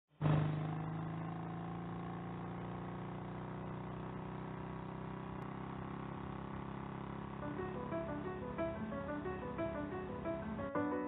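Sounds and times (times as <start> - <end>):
faint flickering rumble: 2.6 - 10.8.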